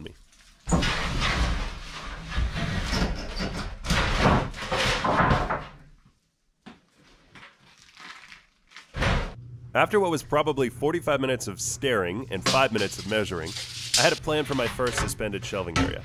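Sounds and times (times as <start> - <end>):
plywood sheet scraping on wood: 0.7 - 5.7.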